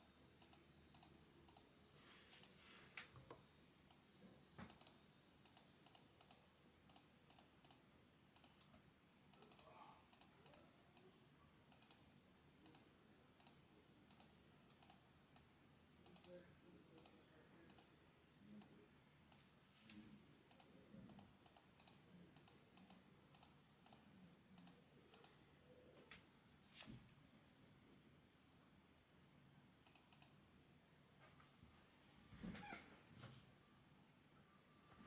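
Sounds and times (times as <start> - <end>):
keyboard and mouse clicks: 0.0 - 1.8, 2.4 - 11.1, 11.7 - 26.3, 29.8 - 30.5.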